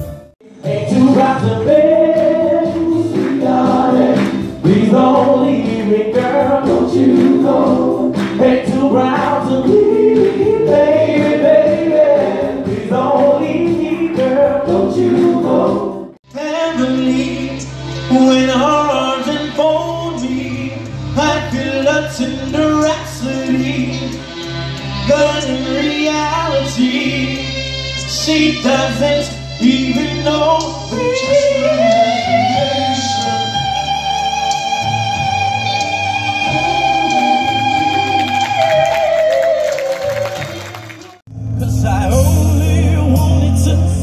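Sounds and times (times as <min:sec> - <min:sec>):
backing music: 0:00.0 - 0:44.0
soul vocal group singing harmony: 0:00.4 - 0:16.2, 0:29.7 - 0:40.5.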